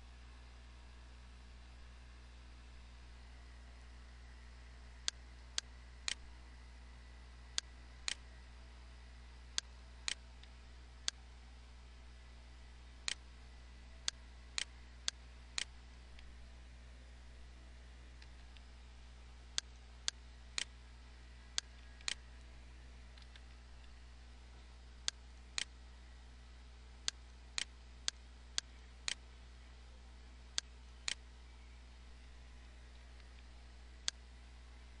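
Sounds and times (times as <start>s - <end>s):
faint low hum: 0.0s - 35.0s
computer mouse clicking: 13.0s - 13.2s, 21.6s - 22.2s, 23.1s - 24.0s, 27.0s - 29.2s, 30.5s - 31.2s.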